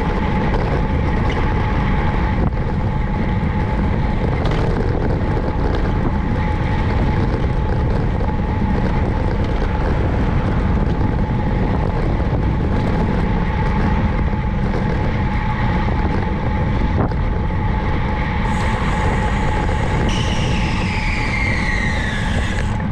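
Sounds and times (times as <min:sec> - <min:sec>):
bicycle road noise: 0:00.0 - 0:22.9
wind rushing over microphone: 0:00.0 - 0:22.9
high whine falling in pitch: 0:18.4 - 0:22.9.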